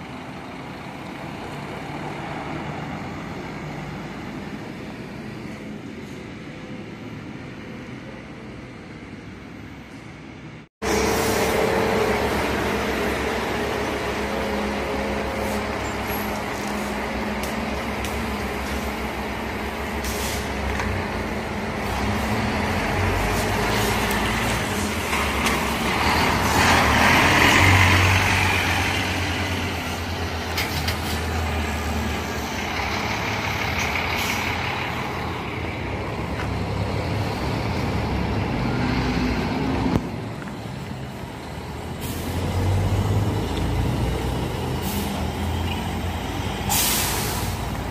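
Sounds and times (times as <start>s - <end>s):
diesel engine running: 10.8s - 47.9s
hiss of air: 20.0s - 20.6s, 46.6s - 47.8s.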